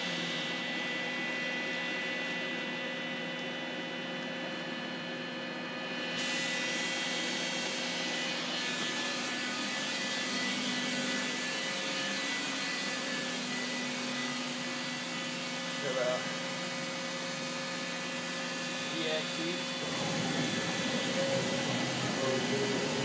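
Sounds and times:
machinery hum: 0:17.2 - 0:23.0
whining tones: 0:19.7 - 0:23.0.

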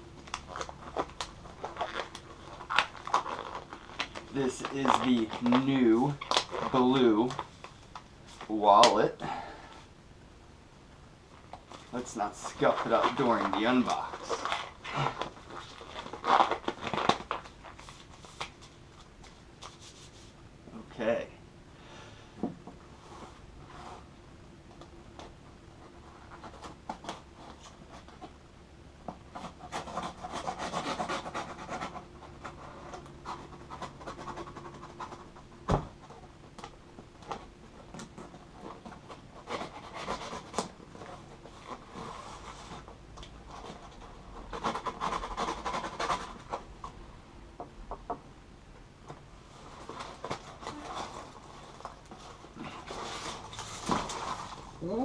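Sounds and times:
tape and cardboard tearing: 0:00.2 - 0:07.5, 0:11.7 - 0:18.6, 0:29.3 - 0:35.3, 0:43.5 - 0:46.6, 0:49.9 - 0:54.7
cardboard scraping and rubbing: 0:11.6 - 0:20.4, 0:29.2 - 0:36.3, 0:37.2 - 0:46.7, 0:49.5 - 0:54.8.

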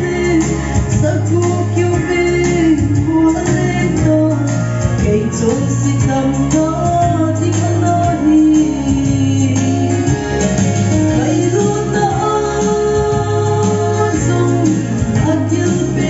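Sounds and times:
instrumental accompaniment with bass: 0:00.0 - 0:16.0
woman singing into a microphone: 0:00.0 - 0:16.0.

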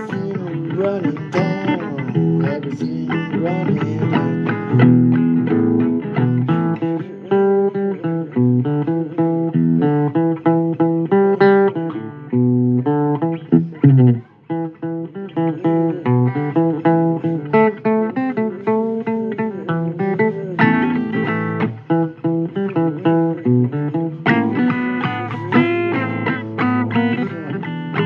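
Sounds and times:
plucked guitar notes: 0:00.0 - 0:28.0.

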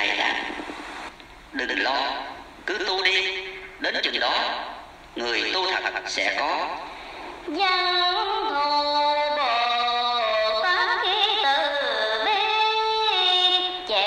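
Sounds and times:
person singing with vibrato: 0:07.5 - 0:14.0.

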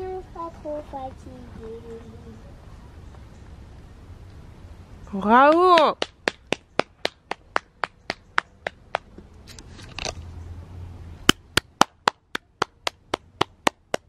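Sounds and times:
person clapping hands: 0:05.5 - 0:09.1, 0:11.5 - 0:14.0.

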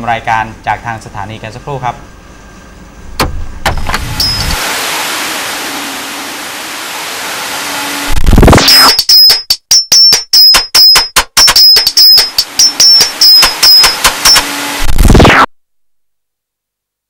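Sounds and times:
sharp choppy hits with ringing tone: 0:08.6 - 0:14.5.

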